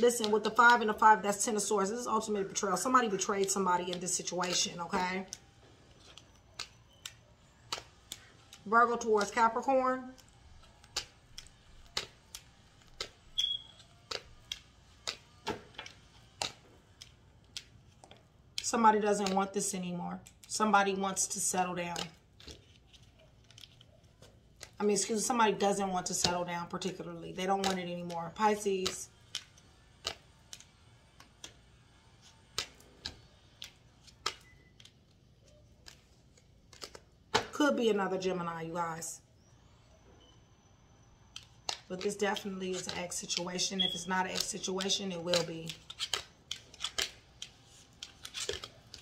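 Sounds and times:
cards shuffling snaps and taps: 0.1s - 1.0s, 2.6s - 9.6s, 10.2s - 19.5s, 20.2s - 37.5s, 41.3s - 49.0s.

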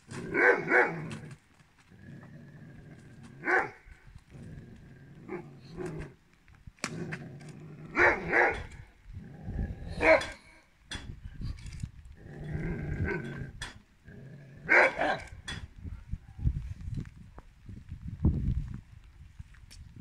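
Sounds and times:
dog growling: 0.1s - 6.2s, 6.9s - 10.6s, 12.2s - 15.4s
dog barking: 0.3s - 1.0s, 3.4s - 3.8s, 8.0s - 8.7s, 10.0s - 10.4s, 14.7s - 15.2s.

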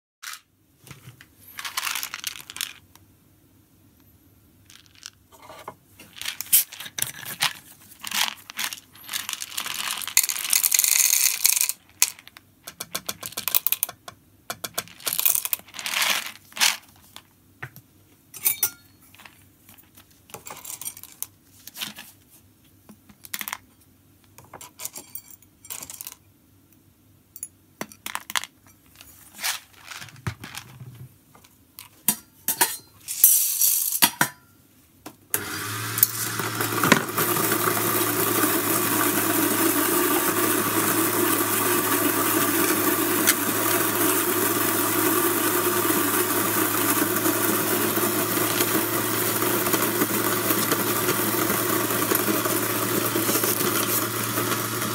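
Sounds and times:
coffee beans clattering: 1.5s - 2.8s, 4.7s - 5.2s, 6.0s - 13.9s, 14.5s - 17.2s, 28.0s - 30.8s, 32.6s - 34.2s, 36.0s - 54.9s.

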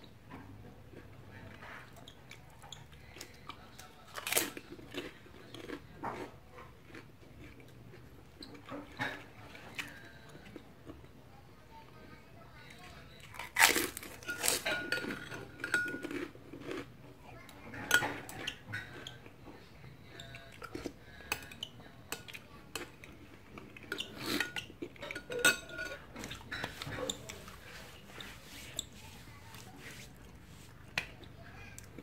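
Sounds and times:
spoon clinking against bowl: 14.2s - 16.1s.

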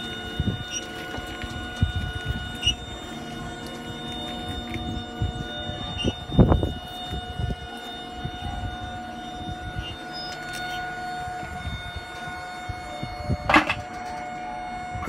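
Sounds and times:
machine whining: 0.0s - 15.0s.

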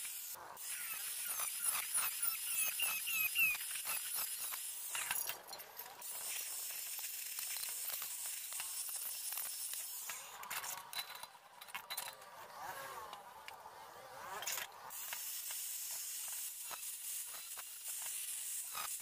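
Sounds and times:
angle grinder cutting metal: 0.0s - 11.1s.

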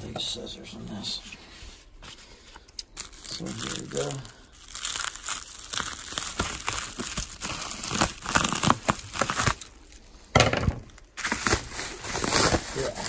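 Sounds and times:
plastic crinkling and crackling: 2.5s - 13.0s
scissors cutting bubble wrap: 3.0s - 9.8s, 11.2s - 13.0s.

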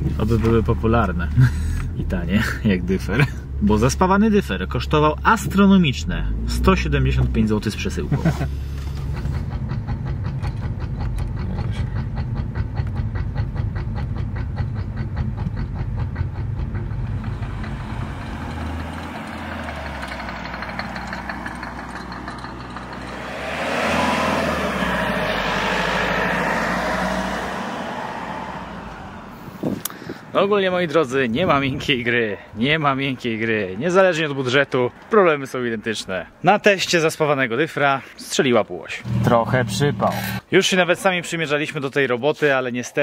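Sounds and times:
car engine running: 0.0s - 29.9s, 39.0s - 40.5s
car passing: 5.9s - 36.4s
fast even clacking: 9.0s - 23.3s.

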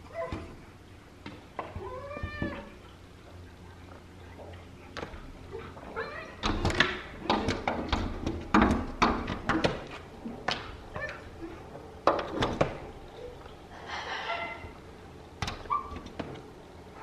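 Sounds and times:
dogs pawing at glass door: 4.4s - 13.5s, 15.4s - 16.6s
animal cry: 13.8s - 14.8s.

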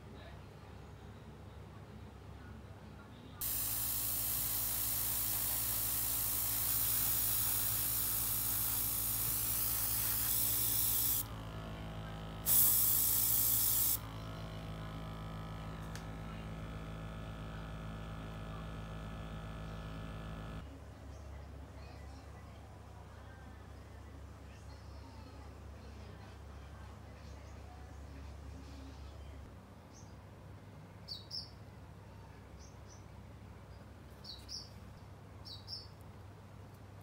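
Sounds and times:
airbrush air hiss: 3.4s - 11.3s, 12.5s - 14.0s
mini compressor humming: 3.4s - 20.6s.

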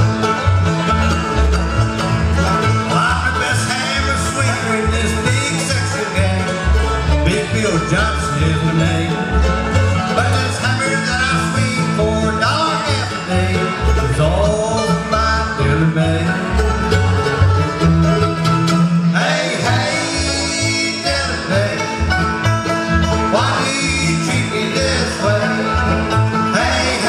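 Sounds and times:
bluegrass band playing: 0.0s - 27.0s
upright bass plucking: 0.0s - 27.0s.

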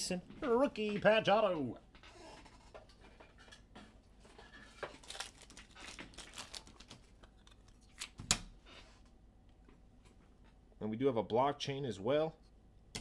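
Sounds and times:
cards and packaging crinkling: 4.6s - 8.2s.

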